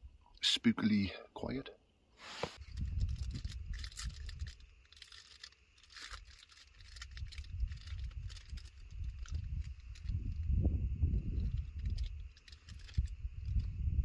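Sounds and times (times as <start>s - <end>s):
snack wrapper crinkling and tearing: 2.6s - 10.4s, 11.4s - 13.7s
steady low rumble: 6.9s - 14.0s.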